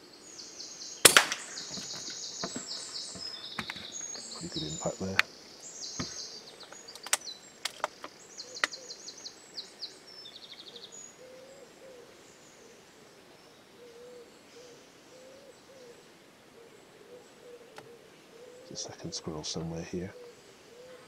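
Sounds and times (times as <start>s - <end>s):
songbird trilling: 0.0s - 12.6s
faint low hooting bird call: 0.0s - 21.0s
sharp clicks: 6.7s - 8.8s.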